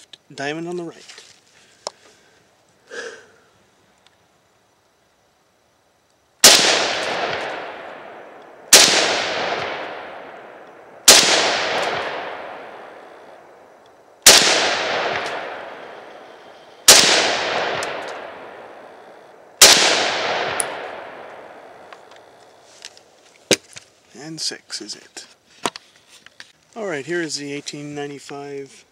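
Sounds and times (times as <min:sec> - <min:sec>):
rifle shots with echo: 0:06.4 - 0:13.6, 0:14.2 - 0:21.9.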